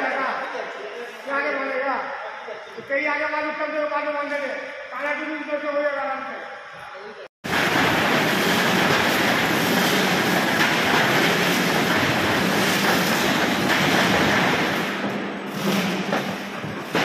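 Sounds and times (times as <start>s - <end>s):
machine rumble and rattle: 7.5s - 17.0s.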